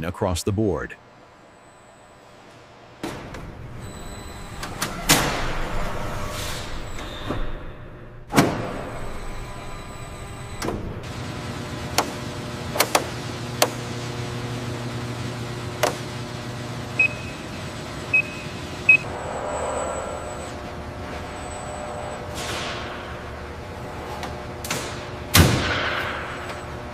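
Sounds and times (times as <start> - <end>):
short electronic beeps: 17.0 - 17.4, 18.1 - 20.6.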